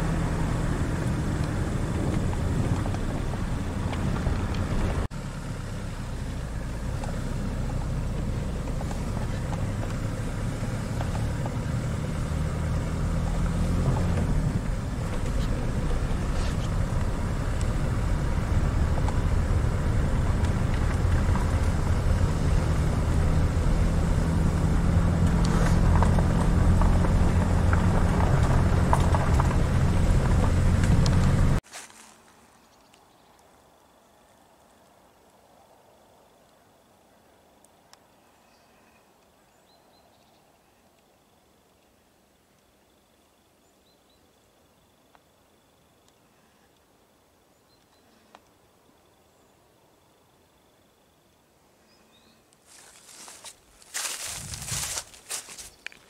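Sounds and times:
car engine and road noise: 0:00.0 - 0:32.3, 0:52.2 - 0:56.0.

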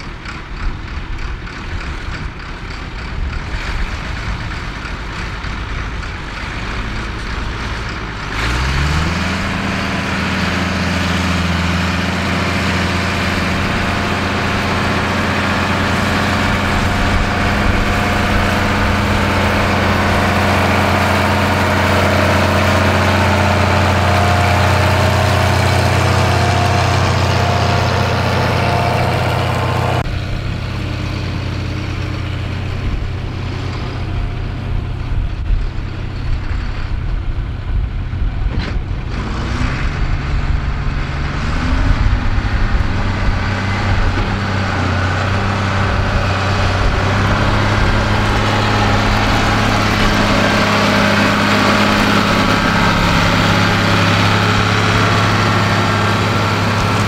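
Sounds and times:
uneven tractor engine knocking: 0:00.0 - 0:09.0, 0:42.8 - 0:57.0
tractor engine under load: 0:00.0 - 0:57.0.

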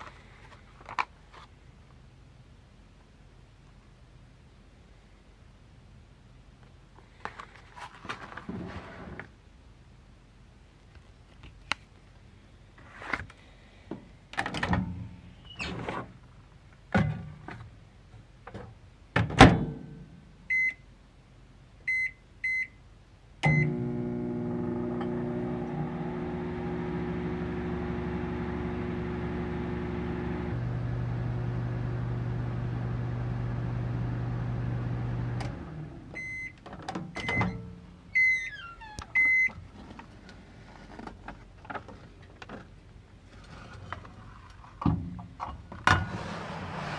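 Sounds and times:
microwave oven humming: 0:23.4 - 0:36.4
keypad beeps: 0:39.2 - 0:39.5.

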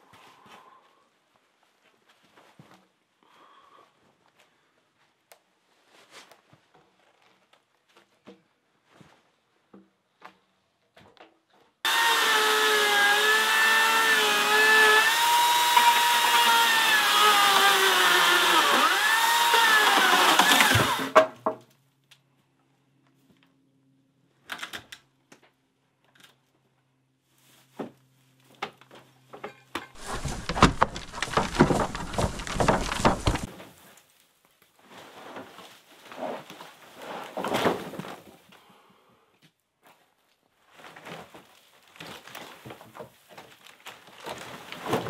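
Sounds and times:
motorised power tool running: 0:11.9 - 0:21.2
knocks and clatter: 0:29.8 - 0:33.5.

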